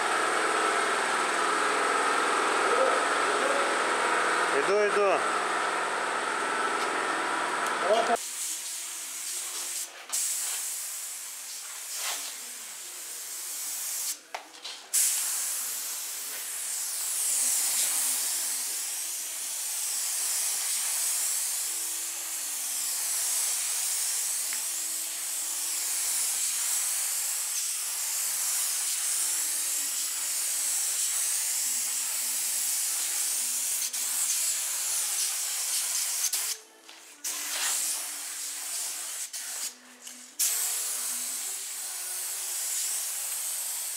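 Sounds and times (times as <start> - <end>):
spray gun hissing: 7.9 - 14.2, 14.9 - 36.6, 37.2 - 39.8, 40.4 - 43.9.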